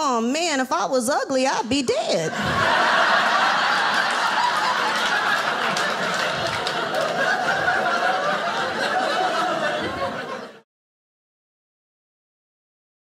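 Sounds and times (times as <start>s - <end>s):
audience laughing: 2.2s - 10.6s.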